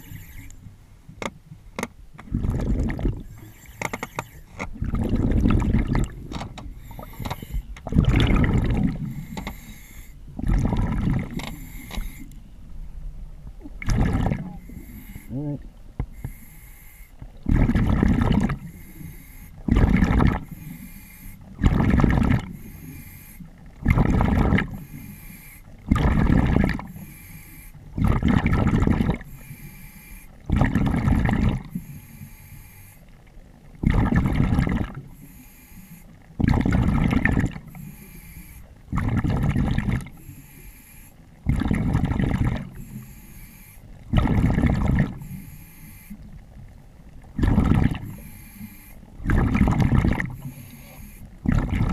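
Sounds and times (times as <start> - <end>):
diver breathing through regulator: 0.0 - 0.6, 2.3 - 12.4, 14.2 - 28.3, 29.2 - 30.6, 31.6 - 33.1, 34.2 - 36.2, 37.7 - 41.2, 42.6 - 46.2, 47.4 - 51.9
exhaust bubbles: 2.2 - 3.4, 4.7 - 7.2, 7.8 - 9.3, 10.3 - 11.6, 13.6 - 15.8, 17.3 - 18.8, 19.6 - 20.6, 21.5 - 22.6, 23.7 - 24.9, 25.8 - 27.1, 27.9 - 29.4, 30.4 - 31.8, 33.8 - 35.2, 36.3 - 37.8, 38.8 - 40.2, 41.4 - 42.9, 44.0 - 45.4, 47.2 - 48.4, 49.1 - 51.9.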